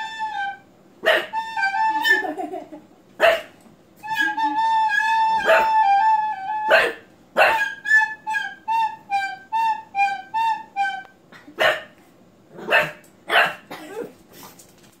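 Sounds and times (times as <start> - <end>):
recorder notes: 0.0 - 2.4, 4.0 - 6.8
puppy barking: 1.0 - 1.4, 3.2 - 3.6, 5.4 - 5.8, 6.7 - 7.8, 11.6 - 12.0, 12.6 - 14.1.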